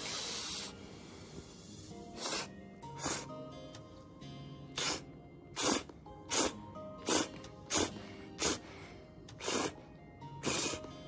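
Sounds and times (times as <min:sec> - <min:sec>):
sharp breaths through the nose: 0:00.0 - 0:03.4, 0:05.6 - 0:09.8
soft background music: 0:00.0 - 0:11.0.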